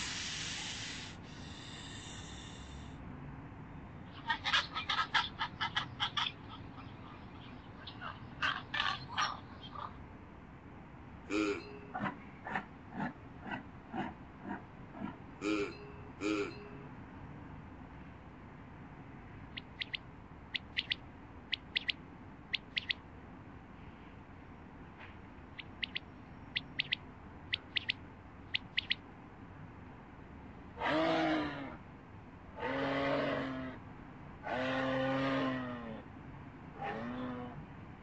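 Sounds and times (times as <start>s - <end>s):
quail calling: 4.1s - 10.0s, 11.3s - 16.6s, 19.5s - 23.0s, 25.6s - 29.0s
moose calls: 11.3s - 16.8s, 19.5s - 23.0s, 25.6s - 29.0s.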